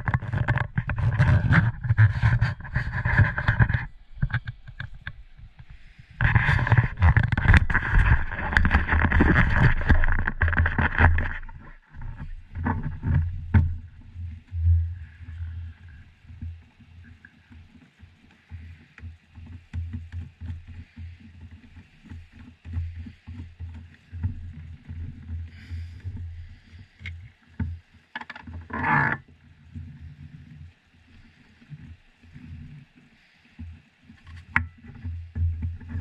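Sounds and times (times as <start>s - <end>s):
scrape or rustle: 0.0s - 5.2s, 5.8s - 16.4s, 20.2s - 36.0s
low rumble on microphone: 0.0s - 17.7s.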